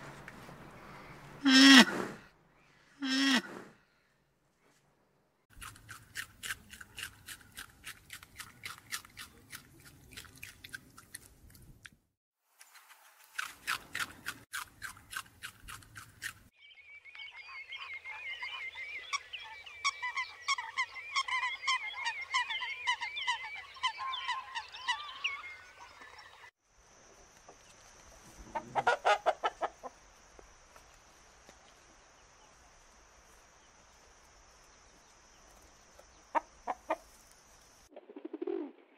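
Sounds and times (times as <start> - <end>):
bird calling with wavering chatter: 17.1 - 26.5
chickens clucking: 28.4 - 30.0, 36.3 - 37.1.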